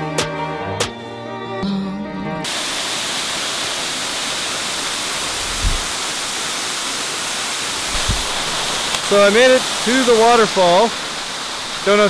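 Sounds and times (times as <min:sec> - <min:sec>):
background music: 0:00.0 - 0:02.5
waterfall rushing: 0:02.4 - 0:12.0
low thump: 0:05.4 - 0:05.9, 0:07.9 - 0:08.5.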